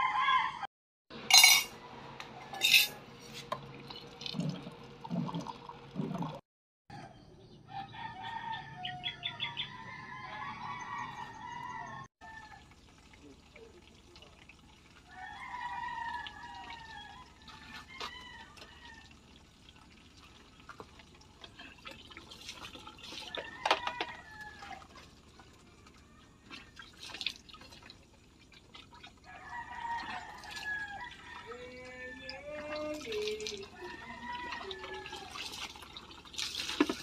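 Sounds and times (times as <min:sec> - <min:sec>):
rooster crowing: 0:00.0 - 0:00.7, 0:06.9 - 0:12.6, 0:15.1 - 0:19.1, 0:23.2 - 0:24.9, 0:29.3 - 0:32.9, 0:33.7 - 0:35.4
water dripping and splashing: 0:03.5 - 0:06.4, 0:12.2 - 0:37.0.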